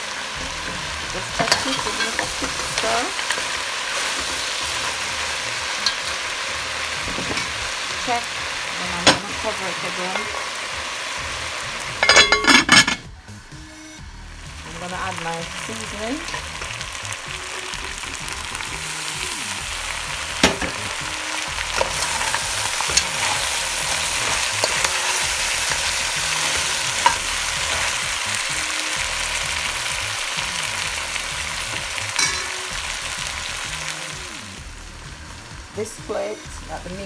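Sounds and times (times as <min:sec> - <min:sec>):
meat sizzling in hot oil: 0:00.0 - 0:13.6, 0:14.3 - 0:37.0
utensil clinking against pot: 0:12.0 - 0:13.0, 0:32.2 - 0:32.5.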